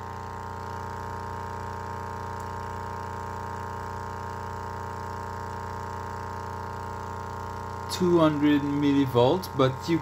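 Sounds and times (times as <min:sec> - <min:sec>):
loudspeaker low buzzing drone: 0:00.0 - 0:01.0, 0:06.8 - 0:10.0.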